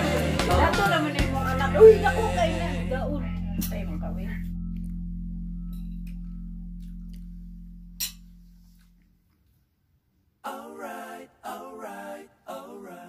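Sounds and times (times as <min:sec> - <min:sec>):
person singing: 0:00.0 - 0:04.0
low held musical note: 0:00.0 - 0:09.2.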